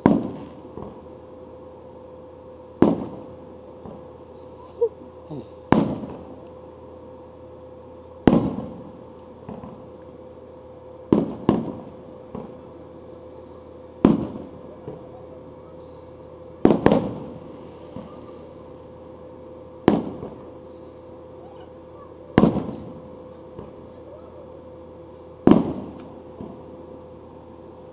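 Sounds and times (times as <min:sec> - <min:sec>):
small firework pops: 0:00.0 - 0:01.0, 0:02.8 - 0:04.1, 0:05.7 - 0:06.6, 0:08.2 - 0:08.8, 0:09.4 - 0:09.8, 0:11.1 - 0:12.6, 0:14.0 - 0:15.0, 0:16.6 - 0:18.2, 0:19.8 - 0:20.4, 0:22.4 - 0:24.1, 0:25.4 - 0:26.6
firework shells booming: 0:00.0 - 0:01.1, 0:02.7 - 0:04.2, 0:05.6 - 0:06.4, 0:08.2 - 0:09.9, 0:11.0 - 0:12.8, 0:14.0 - 0:15.4, 0:16.6 - 0:18.8, 0:19.8 - 0:20.6, 0:22.3 - 0:23.9, 0:25.4 - 0:26.7.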